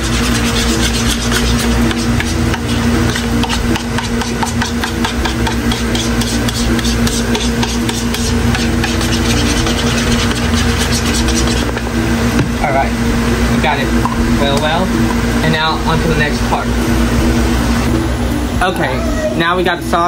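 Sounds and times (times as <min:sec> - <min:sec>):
spoon scraping a plastic bowl: 0:00.0 - 0:11.8
mechanical hum with low rumble: 0:00.0 - 0:20.0.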